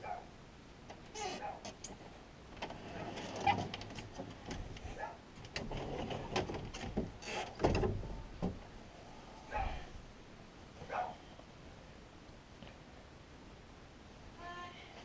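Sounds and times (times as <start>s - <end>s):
closet doors clicking and rattling: 2.6s - 8.8s.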